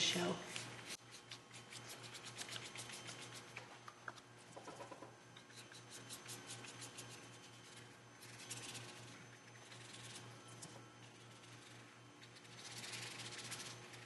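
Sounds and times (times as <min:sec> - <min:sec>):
paintbrush stroking paper: 0:11.1 - 0:14.0.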